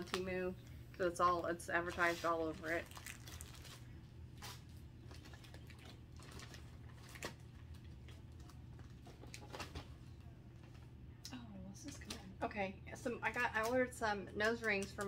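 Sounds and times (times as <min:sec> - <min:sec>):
steady low hum: 0:00.0 - 0:15.0
plastic packaging rustling: 0:01.7 - 0:10.8.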